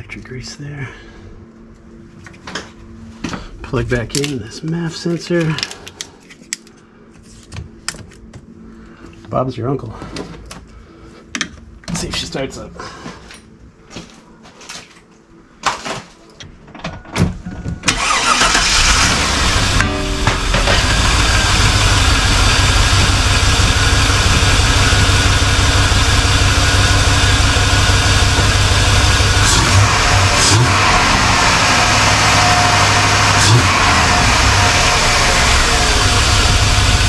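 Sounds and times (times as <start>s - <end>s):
truck engine starting and idling: 17.9s - 37.0s.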